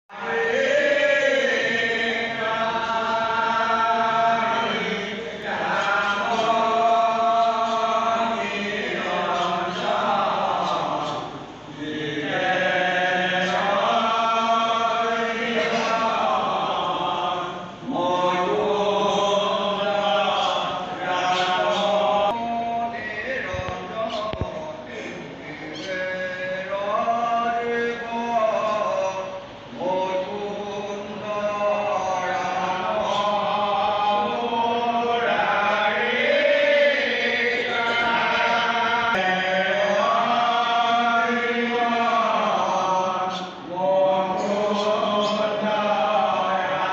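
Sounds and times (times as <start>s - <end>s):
group chanting devotional prayer: 0.1s - 46.9s.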